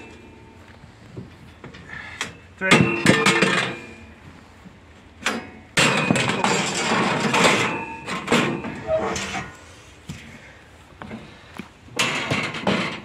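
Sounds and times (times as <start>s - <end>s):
metal clamps clanking and scraping: 5.2s - 9.7s, 12.0s - 13.0s.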